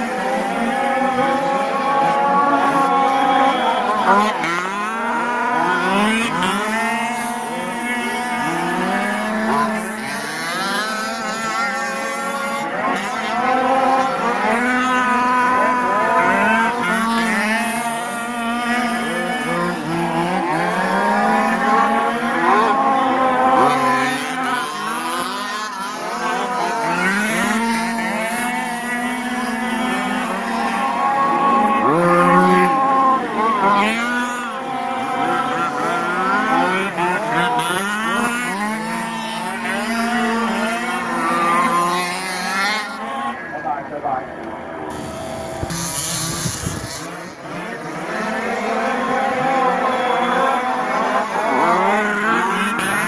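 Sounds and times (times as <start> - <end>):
small two-stroke engines revving: 0.0 - 53.0.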